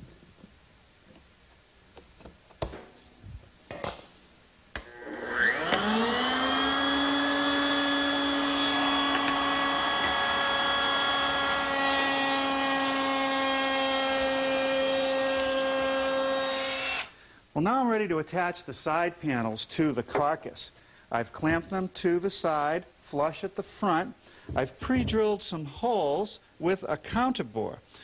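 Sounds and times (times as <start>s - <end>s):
router spinning up and running: 4.8s - 17.0s.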